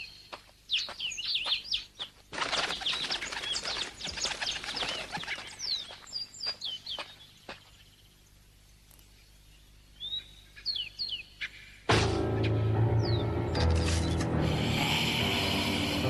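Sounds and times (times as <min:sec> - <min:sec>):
small birds chirping: 0:00.0 - 0:11.9
flapping wings: 0:02.1 - 0:06.1.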